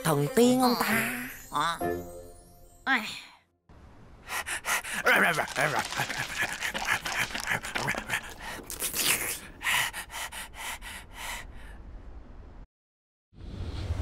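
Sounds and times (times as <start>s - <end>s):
creature snuffling and sniffing: 4.3s - 10.6s.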